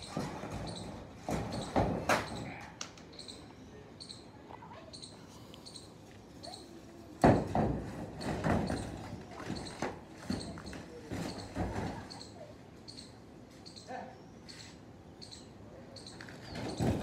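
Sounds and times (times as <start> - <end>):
loud thump on metal roof: 0.0 - 2.5, 7.2 - 9.8, 16.6 - 17.0
scrabbling and bumping on sheeting: 7.2 - 12.2, 16.4 - 17.0
faint high chirp: 11.3 - 16.8.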